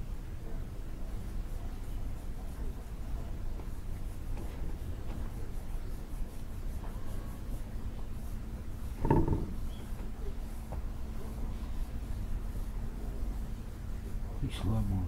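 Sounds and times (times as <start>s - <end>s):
steady low hum: 0.0s - 15.0s
brush scratching fibreglass tape: 1.6s - 10.3s.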